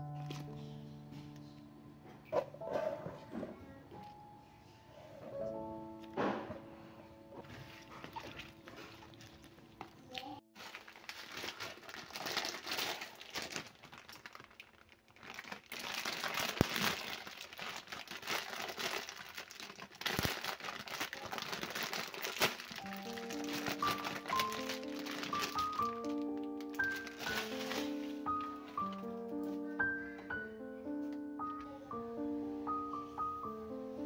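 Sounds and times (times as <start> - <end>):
plastic packet crinkling: 0.0 - 0.6, 7.8 - 30.1.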